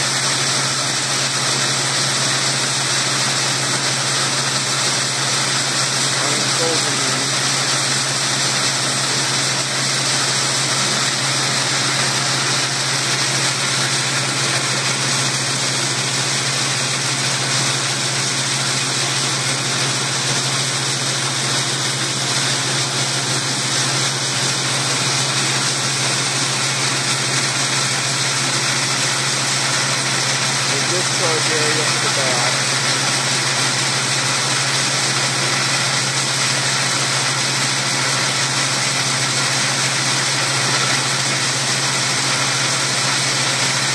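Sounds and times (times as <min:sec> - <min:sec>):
machine hum: 0:00.0 - 0:43.9
even hiss: 0:30.7 - 0:32.8.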